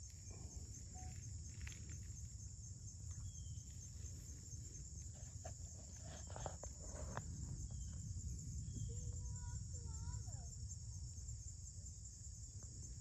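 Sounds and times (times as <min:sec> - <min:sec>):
crickets chirping: 0:00.0 - 0:13.0
low outdoor rumble: 0:00.0 - 0:13.0
ticks and scrapes on gravel: 0:03.1 - 0:08.0.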